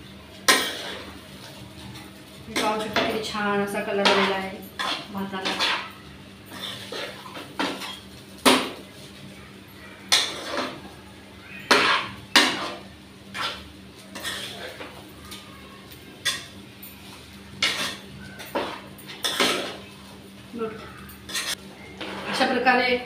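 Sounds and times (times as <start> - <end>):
spatula clacking on pan: 0.5 - 1.0, 4.0 - 5.9, 11.7 - 12.8
spatula scraping pan: 0.5 - 1.6, 2.2 - 8.8, 10.1 - 10.8, 11.6 - 15.1, 16.2 - 19.9, 21.2 - 22.7.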